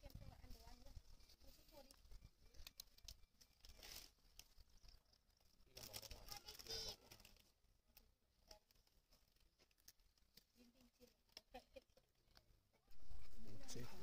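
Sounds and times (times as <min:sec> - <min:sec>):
small ticks: 0:01.7 - 0:12.5.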